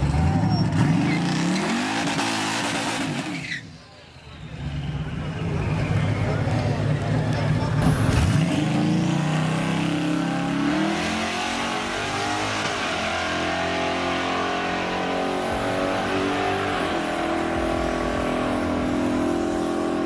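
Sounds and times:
car engine accelerating hard: 0:05.6 - 0:20.0.

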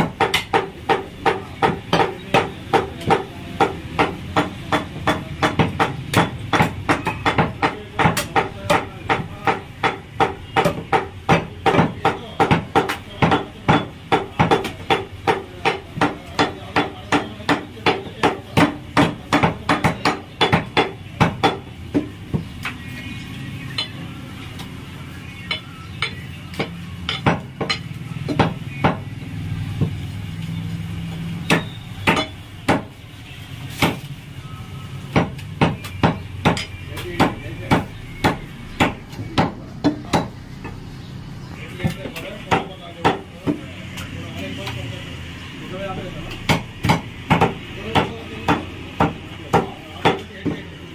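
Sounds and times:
cleaver chopping on wooden block: 0:00.0 - 0:22.8, 0:25.4 - 0:29.1, 0:31.4 - 0:32.9, 0:33.7 - 0:34.1, 0:35.1 - 0:40.4.

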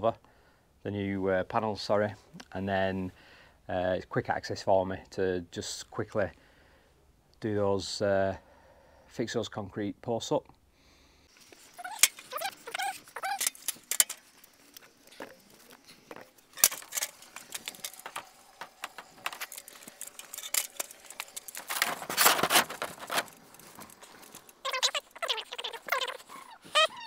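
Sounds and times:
panel scraping free: 0:16.5 - 0:24.6.

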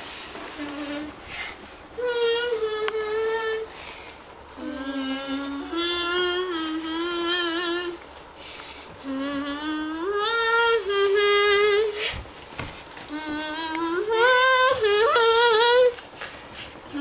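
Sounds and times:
child singing: 0:02.0 - 0:03.7, 0:04.6 - 0:08.0, 0:09.0 - 0:12.0, 0:13.1 - 0:16.0.

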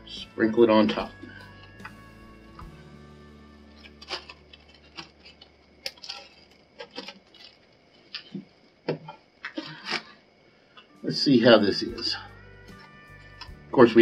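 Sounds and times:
plastic zip bag crinkling: 0:03.8 - 0:08.4.

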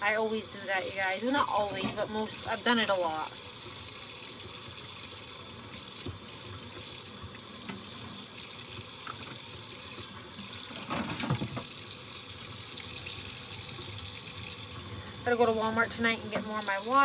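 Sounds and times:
tap running into sink: 0:05.7 - 0:11.8.

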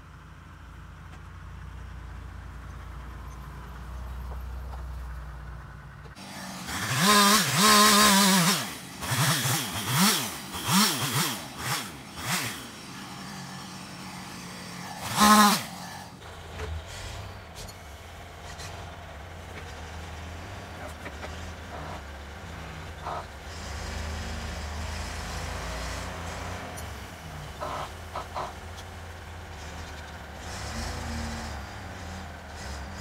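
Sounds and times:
low engine rumble: 0:00.0 - 0:06.8, 0:12.8 - 0:33.0
engine revving hard: 0:06.2 - 0:16.2, 0:23.0 - 0:28.6, 0:29.5 - 0:33.0.

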